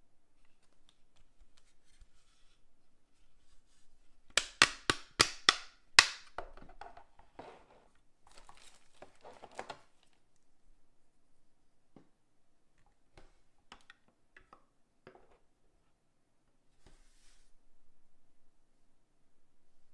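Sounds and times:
plastic crinkling: 8.2s - 10.2s
plastic wrapping ripping: 8.3s - 10.2s.

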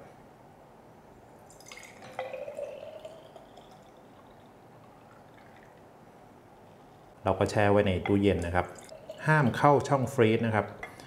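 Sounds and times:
juice pouring into glass bottle: 1.4s - 6.0s, 8.7s - 10.0s
liquid dripping: 1.4s - 7.1s, 8.1s - 11.0s.

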